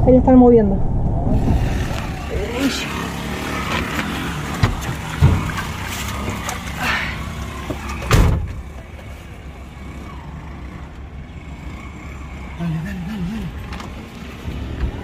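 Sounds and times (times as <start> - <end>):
vehicle rumble: 0.0 - 15.0
sharp knocks and thumps: 3.6 - 6.7.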